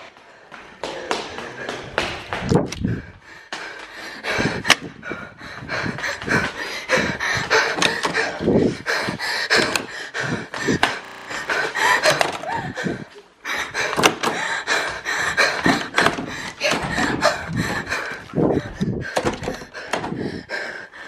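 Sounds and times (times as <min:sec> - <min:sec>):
person panting heavily: 0:00.1 - 0:21.0
doors banging and thudding: 0:06.3 - 0:13.1, 0:13.8 - 0:20.4
door handle rattling: 0:10.6 - 0:12.5.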